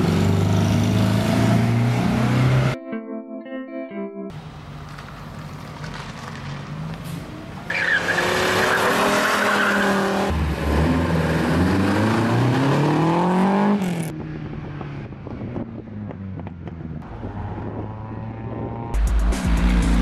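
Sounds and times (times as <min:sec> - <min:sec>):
rally car engines revving: 0:00.0 - 0:02.8, 0:07.7 - 0:14.2.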